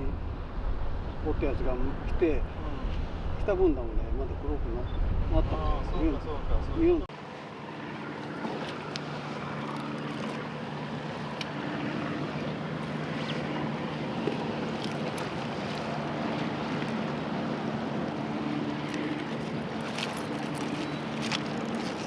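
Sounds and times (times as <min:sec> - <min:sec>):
wind on microphone: 0:00.0 - 0:07.1
motorboat engine droning: 0:00.0 - 0:22.0
waves washing: 0:00.0 - 0:22.0.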